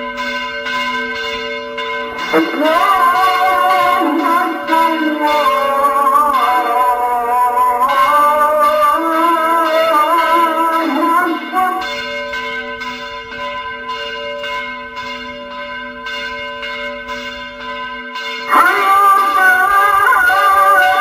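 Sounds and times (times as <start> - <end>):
held ringing tones: 0.0 - 21.0.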